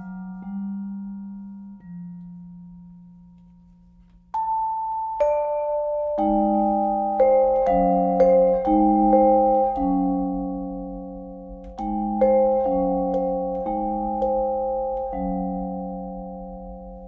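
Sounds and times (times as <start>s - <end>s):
vibraphone notes and chords: 0.0s - 3.2s, 4.3s - 17.0s.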